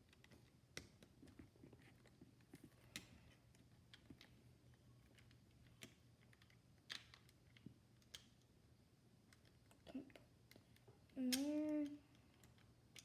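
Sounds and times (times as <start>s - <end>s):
low room hum: 0.0s - 13.0s
plastic pieces clicking: 2.0s - 8.5s, 9.2s - 13.0s.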